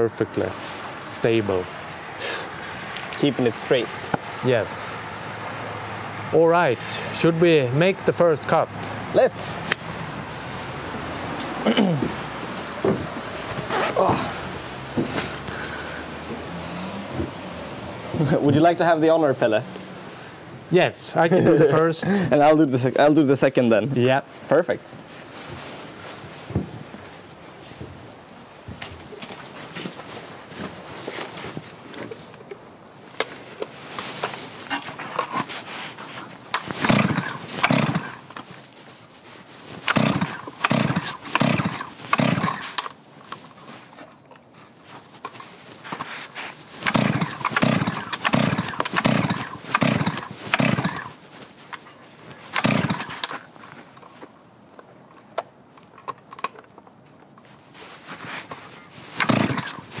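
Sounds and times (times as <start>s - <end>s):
chainsaw starter cord pulls: 34.6s - 35.8s, 36.5s - 38.5s, 39.8s - 43.5s, 46.8s - 51.2s, 52.4s - 54.1s, 58.6s - 60.0s.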